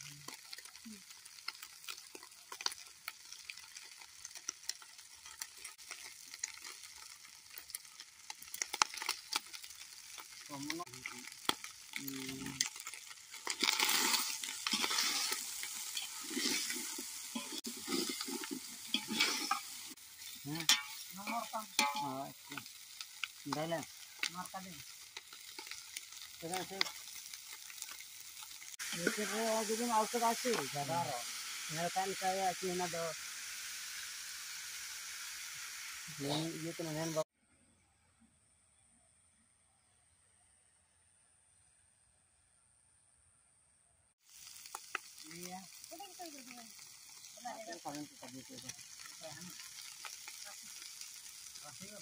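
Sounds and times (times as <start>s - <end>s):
chicken sizzling in a pot: 0.0s - 37.3s, 44.1s - 52.0s
metal spoon scraping a pot: 13.5s - 19.8s.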